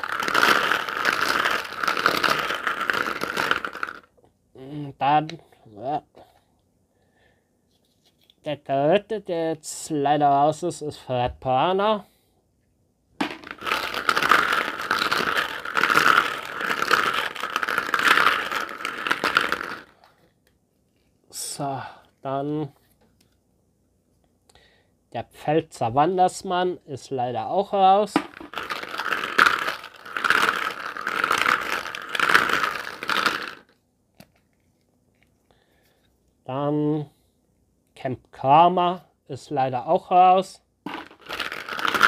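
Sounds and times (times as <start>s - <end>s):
plastic capsules rattling: 0.0s - 4.1s, 13.2s - 20.2s, 28.2s - 35.4s, 40.9s - 42.0s.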